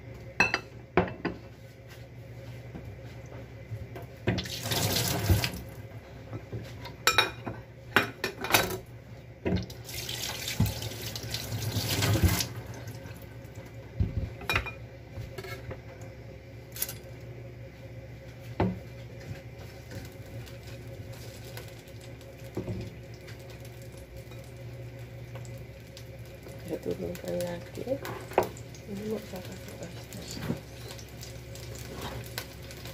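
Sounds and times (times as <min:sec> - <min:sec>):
kitchen tap running: 0:04.3 - 0:05.8, 0:09.5 - 0:13.3, 0:21.4 - 0:32.9
steady low hum: 0:10.6 - 0:32.9.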